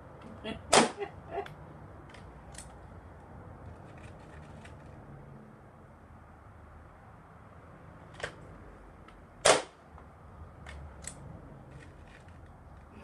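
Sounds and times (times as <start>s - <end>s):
air rifle shot: 9.4s - 9.8s.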